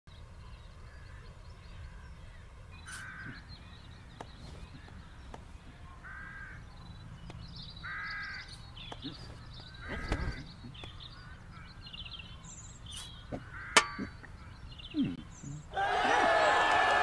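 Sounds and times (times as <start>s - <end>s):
faint bird chirps: 0.1s - 15.8s
low outdoor rumble: 0.1s - 16.6s
crow cawing: 6.0s - 6.6s, 7.8s - 8.5s, 13.5s - 14.1s.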